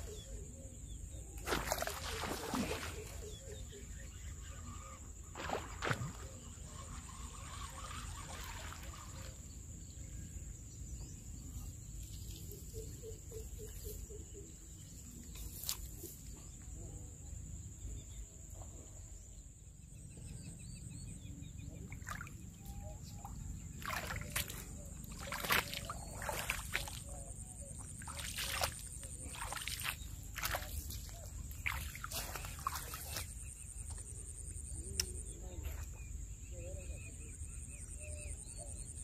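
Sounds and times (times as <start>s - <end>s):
cricket trill: 0.0s - 39.0s
splashes in shallow water: 1.4s - 3.4s, 5.3s - 9.4s, 21.8s - 33.9s.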